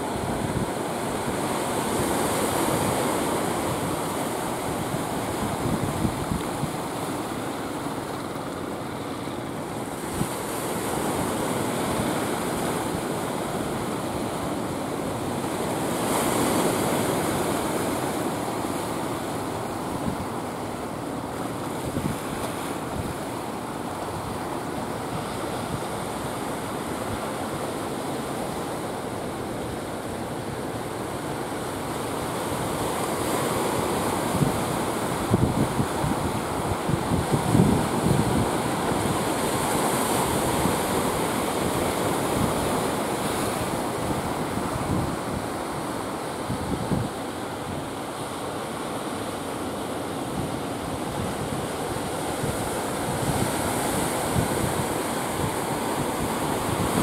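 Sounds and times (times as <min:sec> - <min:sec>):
surf and waves washing: 0:00.0 - 0:57.0
wind buffeting microphone: 0:02.8 - 0:08.5, 0:34.0 - 0:48.0.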